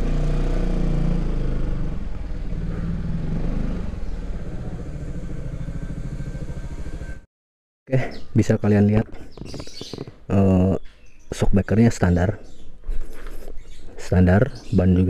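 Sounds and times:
scooter engine chugging: 0.7 - 7.3.

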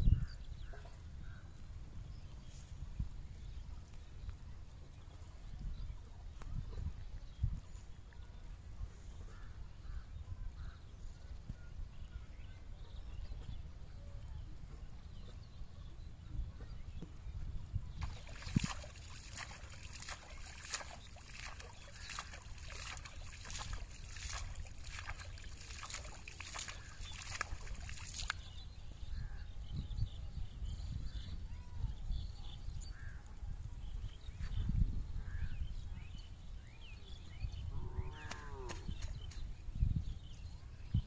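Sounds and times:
hand slapping pond water: 18.0 - 28.5, 38.2 - 39.5.

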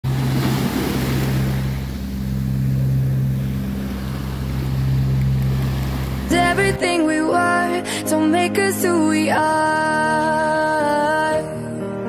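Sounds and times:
waves washing over sand: 0.0 - 6.8
low hum: 0.0 - 7.5.

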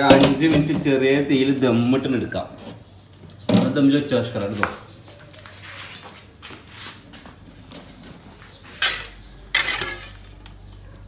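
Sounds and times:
metal cookware clanking: 8.7 - 10.5.

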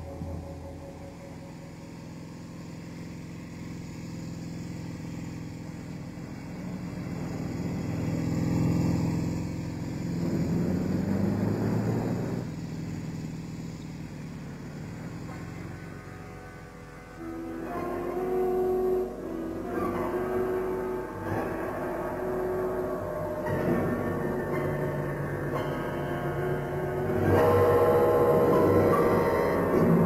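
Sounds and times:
car passing by: 6.4 - 12.6.

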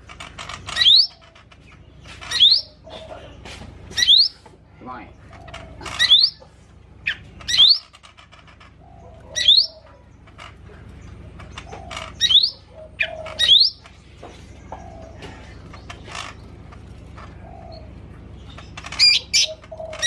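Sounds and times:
bird whistling calls: 0.8 - 1.2, 2.3 - 2.8, 4.0 - 4.4, 6.0 - 6.4, 9.3 - 9.8, 12.2 - 13.8, 19.0 - 20.0.

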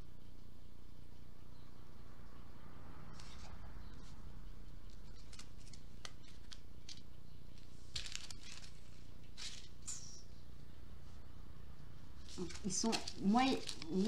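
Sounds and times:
steady low hum: 0.0 - 14.0
paper rustling: 4.9 - 9.9, 12.2 - 14.0.

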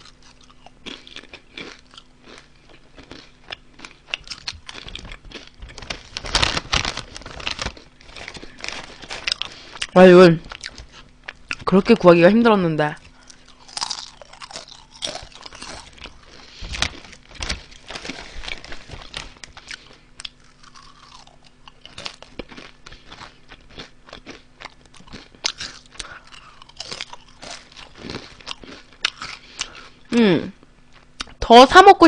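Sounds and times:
crunching potato chips: 0.0 - 11.8, 13.0 - 30.1.

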